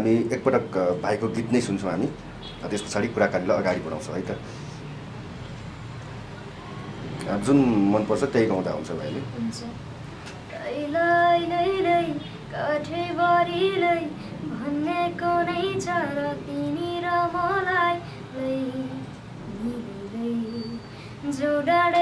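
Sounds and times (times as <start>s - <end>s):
boy singing unaccompanied: 10.5s - 22.0s.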